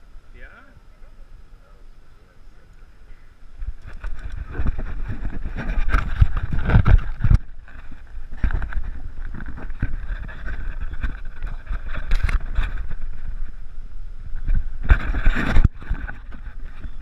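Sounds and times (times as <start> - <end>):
wind rumbling on microphone: 0.0 - 17.0
camera rustling and knocks: 3.6 - 13.6, 14.3 - 17.0.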